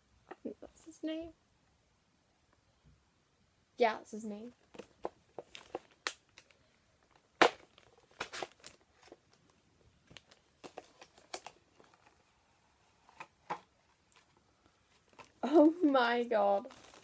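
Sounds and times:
plastic packaging crackling: 4.6 - 12.3, 13.0 - 17.0.

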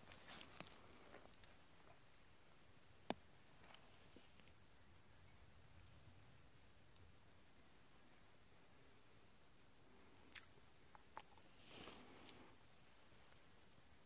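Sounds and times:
high-pitched insect trill: 0.0 - 14.0
soft rustles: 11.4 - 13.5.

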